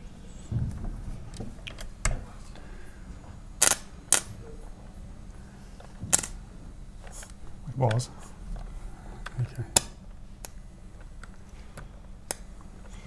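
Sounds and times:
electrical sparks cracking: 3.6s - 4.4s, 6.0s - 6.4s.

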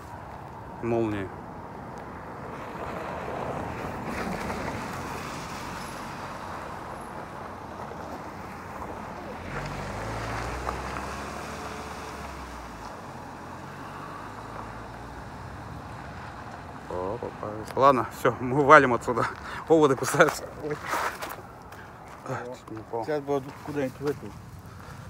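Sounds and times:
wind: 0.0s - 25.0s.

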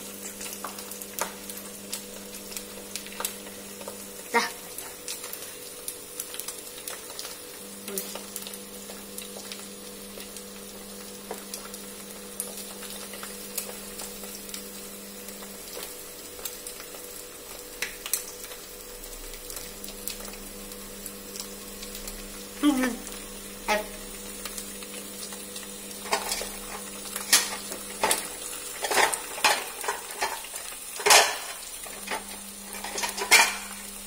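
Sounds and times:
egg sizzling in oil: 0.0s - 34.0s
crackles and pops: 0.1s - 22.4s.

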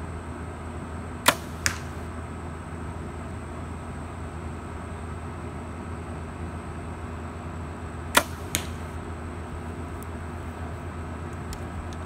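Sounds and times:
low hum: 0.0s - 12.0s
arrow hitting target: 1.2s - 2.1s, 8.2s - 9.0s
bow string snap: 1.3s - 2.0s, 8.2s - 9.0s.

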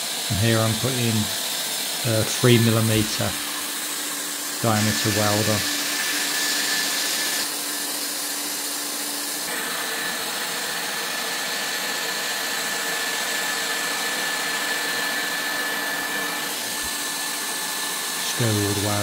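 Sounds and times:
hot-air welding gun blowing: 0.0s - 19.0s
thin high whine: 4.6s - 7.4s.

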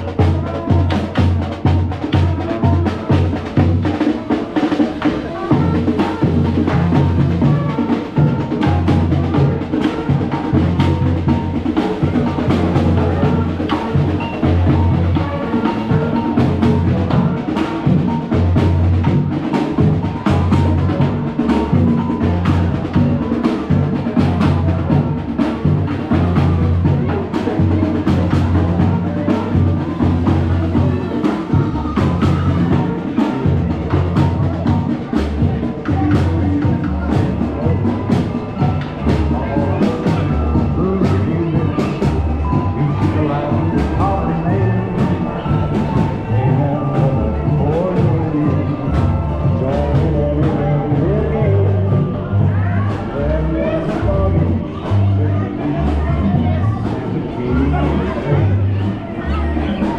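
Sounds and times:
drums beating quick rhythm: 0.0s - 59.9s
marching band playing: 0.0s - 59.9s.

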